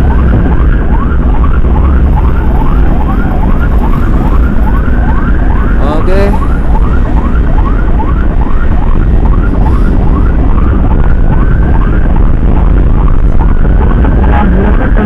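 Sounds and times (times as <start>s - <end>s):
emergency siren fast yelp: 0.0s - 15.0s
faint slower siren tone: 0.0s - 15.0s
motorcycle engine and wind rumble: 0.0s - 15.0s.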